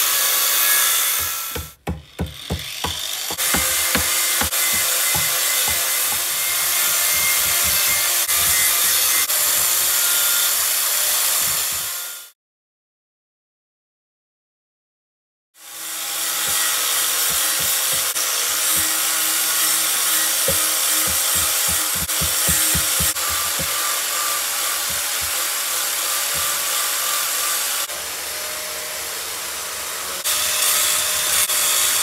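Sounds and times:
hatchet chopping wood: 1.0 - 10.0, 16.3 - 27.0.

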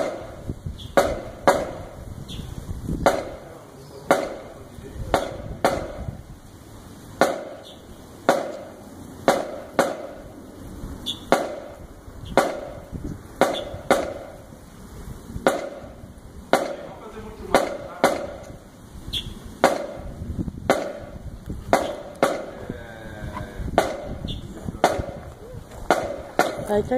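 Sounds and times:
marching percussion strikes: 0.0 - 2.1, 3.0 - 6.1, 7.2 - 10.4, 11.1 - 14.5, 15.4 - 18.6, 19.6 - 22.6, 23.7 - 25.2.

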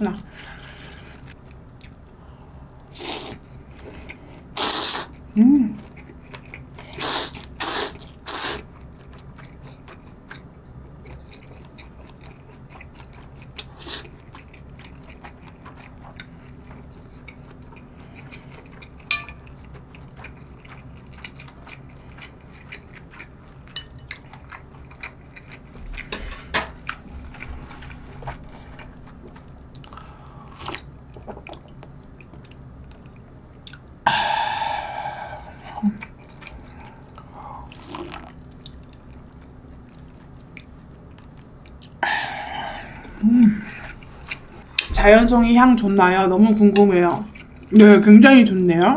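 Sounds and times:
quiet chewing: 5.8 - 34.0, 35.4 - 45.1.

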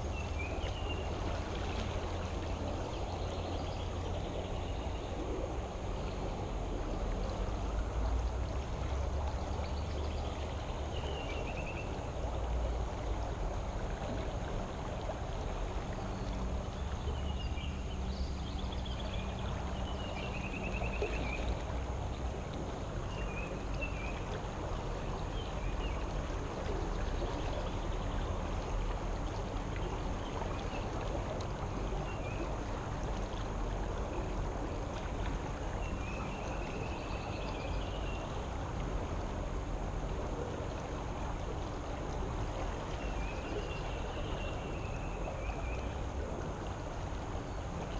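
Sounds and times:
creek water rushing: 0.0 - 47.9.

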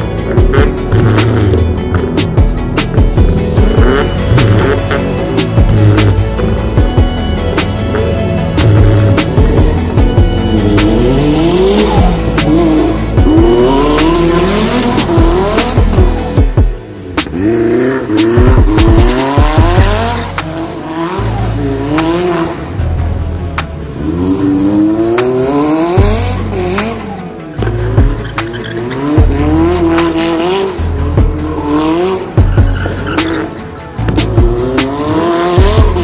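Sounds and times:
car engine revving: 0.0 - 36.0.

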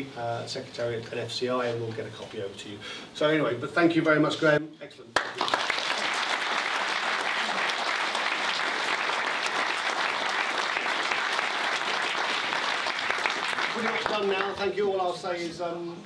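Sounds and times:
audience applauding: 5.2 - 14.7.

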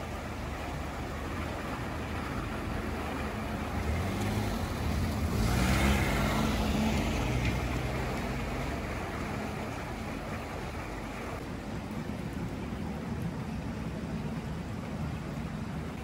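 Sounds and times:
road vehicle passing: 0.0 - 11.4.

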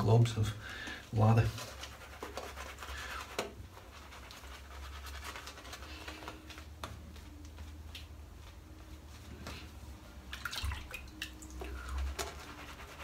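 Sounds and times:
shaving brush strokes on lather: 1.2 - 6.5, 11.5 - 13.0.

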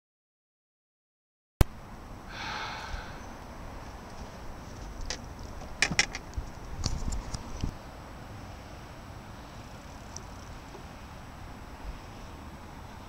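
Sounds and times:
wind rumbling on microphone: 2.1 - 7.9
sharp clicks and knocks: 5.0 - 7.4.

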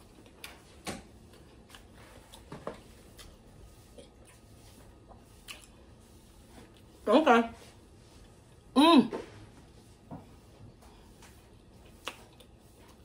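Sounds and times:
person chewing: 3.1 - 4.5, 5.4 - 5.8, 11.8 - 13.0.

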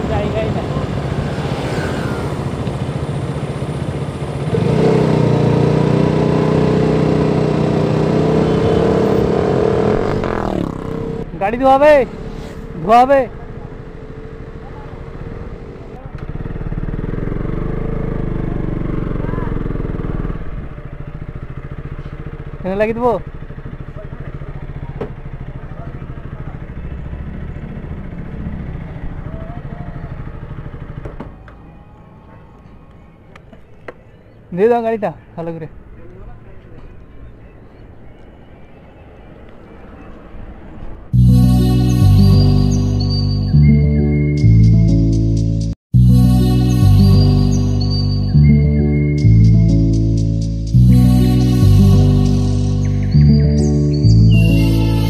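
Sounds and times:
motorcycle engine running: 0.0 - 31.8, 46.8 - 55.0.

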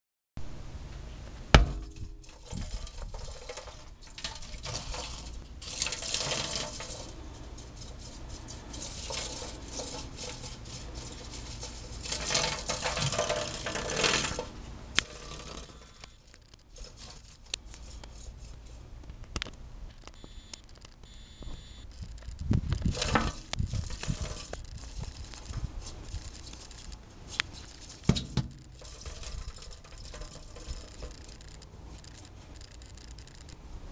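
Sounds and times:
low thumps: 1.3 - 2.3
claws skittering on metal sink: 1.5 - 18.8, 21.9 - 33.6
sharp clicks: 19.1 - 22.9, 30.7 - 33.6.

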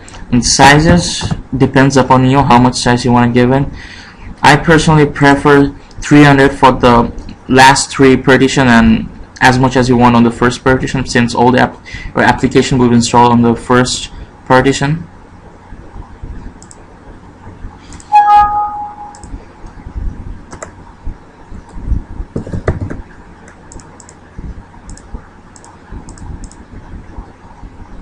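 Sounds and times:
short loud beep: 18.1 - 19.2
keyboard keystrokes: 20.5 - 20.8.

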